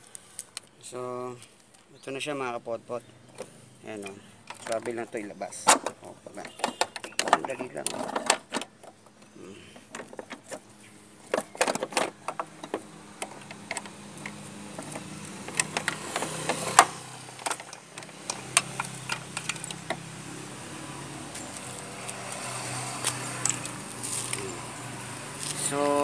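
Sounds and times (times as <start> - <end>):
metallic clicks and knocks: 3.3 - 10.6, 11.3 - 20.0.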